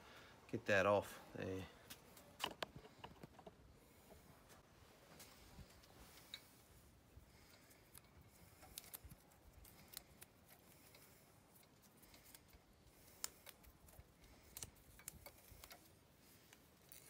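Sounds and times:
cable wires brushing: 1.9 - 17.0
small clicks and rustling: 7.4 - 17.0.

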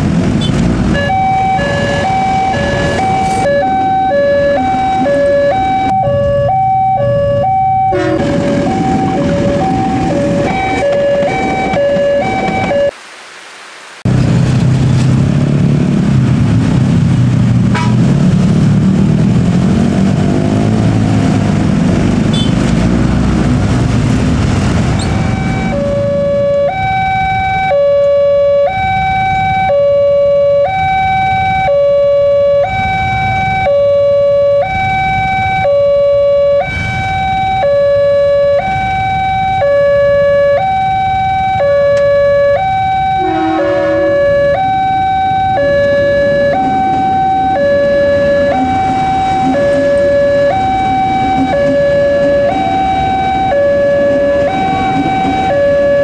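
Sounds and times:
road traffic passing: 0.0 - 13.0, 13.7 - 56.0
level crossing two-tone alarm: 1.0 - 13.0, 25.0 - 56.0.

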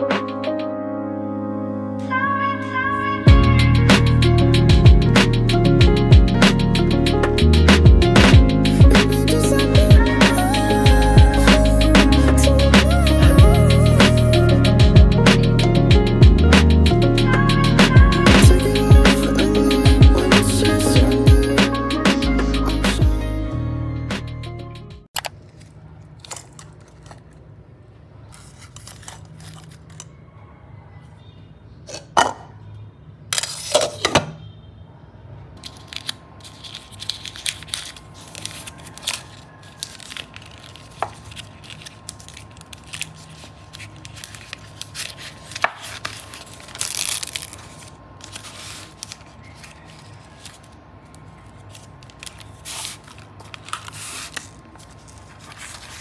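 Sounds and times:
packaging rustling and tearing: 25.2 - 27.4, 28.3 - 30.1, 35.6 - 56.0.

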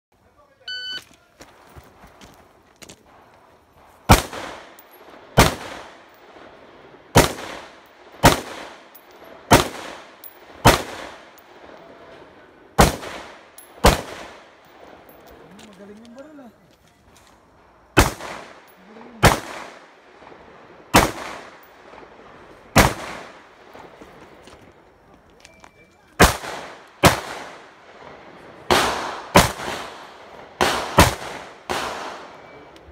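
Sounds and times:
rifle shots echoing: 4.0 - 15.4, 18.0 - 24.0, 26.2 - 32.7.

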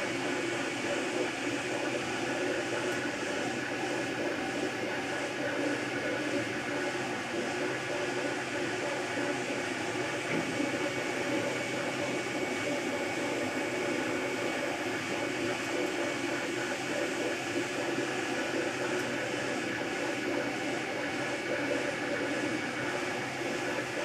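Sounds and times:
printer stepper motors whirring: 0.0 - 24.0.

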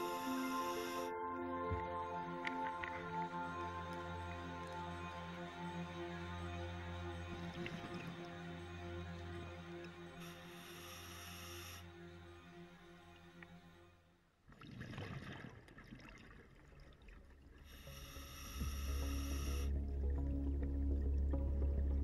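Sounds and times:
sustained synthesizer tones: 0.0 - 13.9, 17.8 - 22.0
deep low drone: 17.8 - 22.0.

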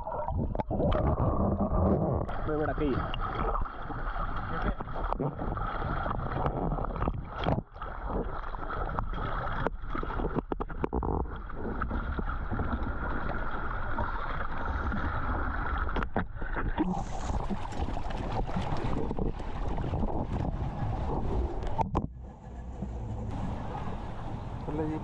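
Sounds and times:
boat engine rumble: 10.2 - 25.0
wind on microphone: 16.9 - 25.0.

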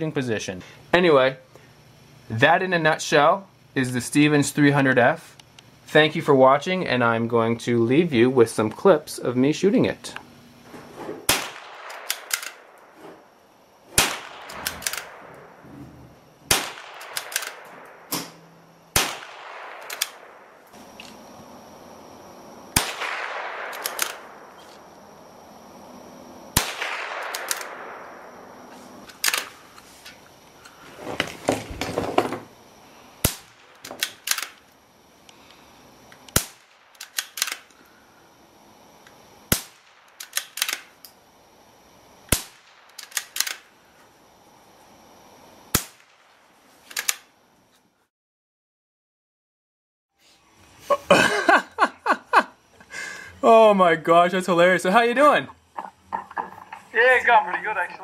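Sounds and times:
rifle shots: 11.2 - 13.0, 13.9 - 15.6, 16.4 - 20.6, 22.7 - 24.5, 26.5 - 28.6, 33.2 - 34.6, 36.3 - 37.7, 39.5 - 40.9, 42.3 - 43.7, 45.7 - 46.4
rifle bolt clicks: 11.8 - 12.6, 14.4 - 15.2, 17.0 - 18.3, 19.8 - 20.2, 23.7 - 24.2, 27.2 - 27.8, 33.8 - 34.6, 36.2 - 37.8, 40.1 - 40.9, 42.9 - 43.6, 46.9 - 47.3.

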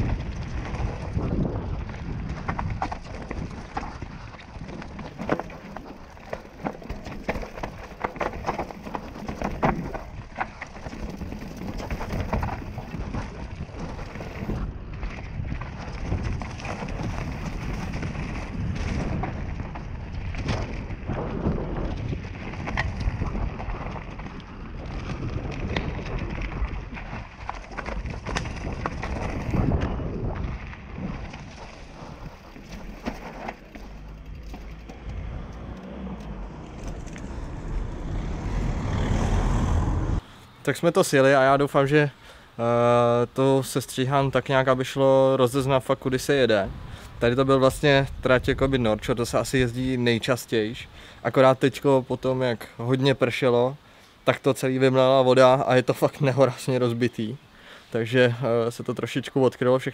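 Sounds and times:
wind on microphone: 0.0 - 6.3, 8.4 - 40.3, 46.0 - 50.1
bike knocking and clattering: 0.0 - 35.9
bike tyres rumbling on dirt: 0.0 - 42.4, 44.2 - 53.5.

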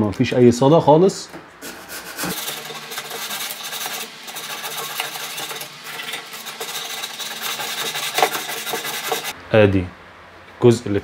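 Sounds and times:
sandpaper rasping on steel: 1.6 - 9.4
motor-like hum: 2.3 - 9.4.

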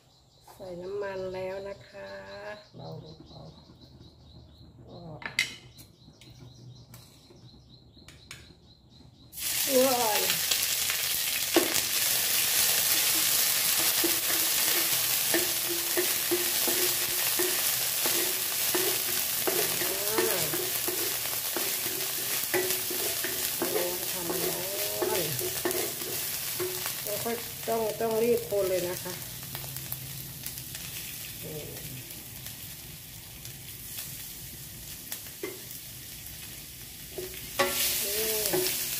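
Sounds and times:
paste sizzling in hot oil: 9.3 - 38.9.

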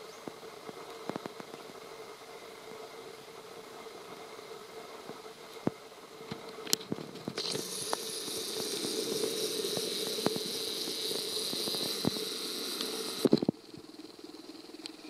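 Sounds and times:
sharp camera clicks: 7.4 - 13.4
camera zoom motor whirring: 7.4 - 15.0.

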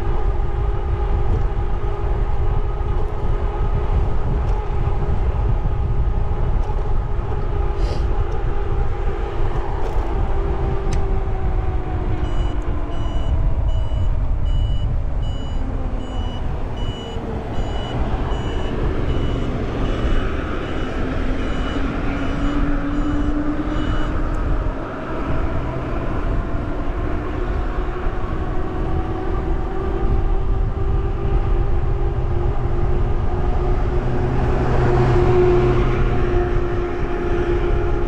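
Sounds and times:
wind and road noise: 0.0 - 38.0
high electronic beeps: 12.3 - 24.2.

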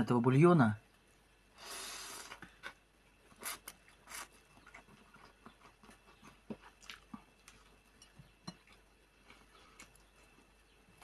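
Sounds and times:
chewing with wet mouth clicks: 3.6 - 10.5.

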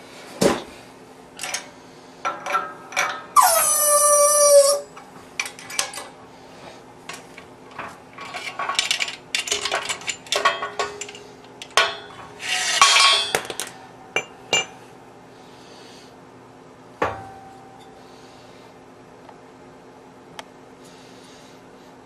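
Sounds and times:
metal parts and tools clinking: 1.4 - 3.3, 7.7 - 14.7
loud squeal dropping in pitch: 3.4 - 4.9.

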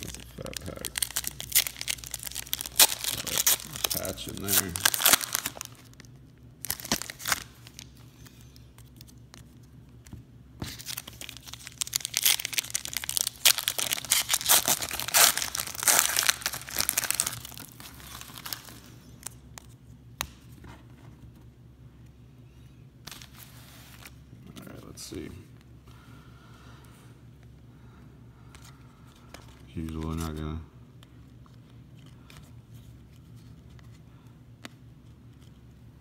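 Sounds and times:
wrapper crinkling and tearing: 0.0 - 8.0, 10.6 - 19.4.

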